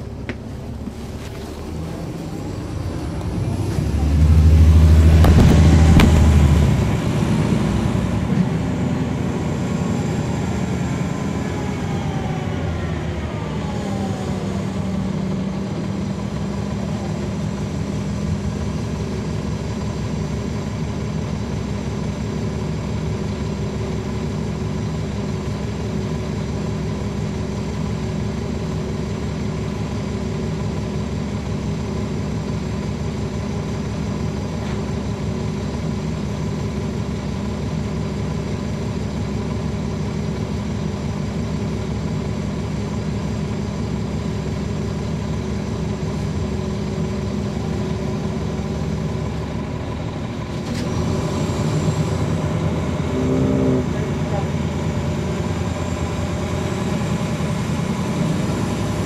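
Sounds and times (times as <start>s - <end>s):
bus diesel engine: 0.0s - 59.0s
transmission whine: 1.8s - 7.2s.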